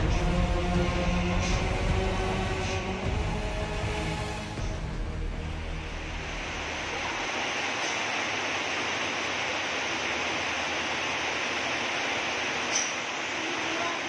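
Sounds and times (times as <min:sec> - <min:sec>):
rain falling on wet road: 0:06.3 - 0:14.0.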